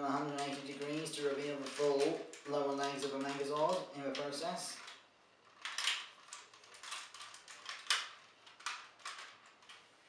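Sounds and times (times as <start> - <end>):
plastic toy parts clicking: 4.8 - 9.8.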